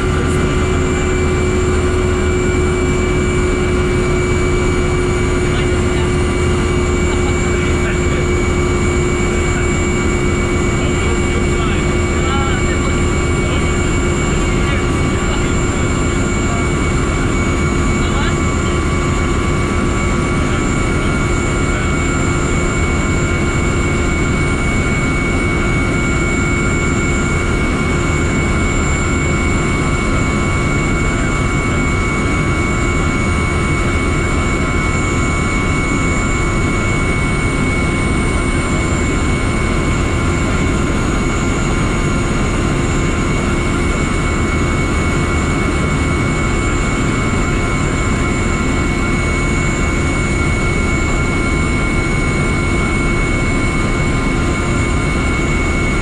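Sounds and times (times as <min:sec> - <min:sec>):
low engine rumble: 0:00.0 - 0:26.6
helicopter turbine whine: 0:00.0 - 0:56.0.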